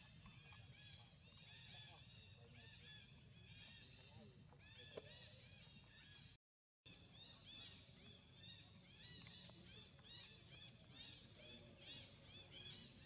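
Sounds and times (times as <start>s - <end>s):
birds chirping: 7.2s - 13.0s.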